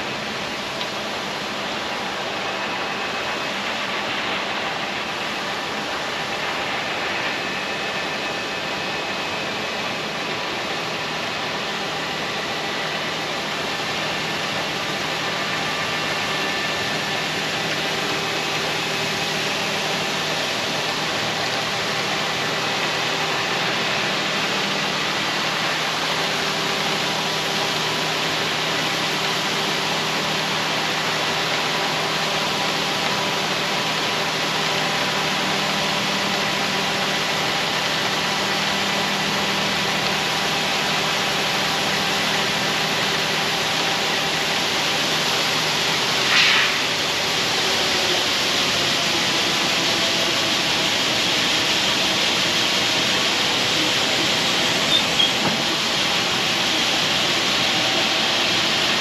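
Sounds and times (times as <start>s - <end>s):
even hiss: 46.0s - 48.1s.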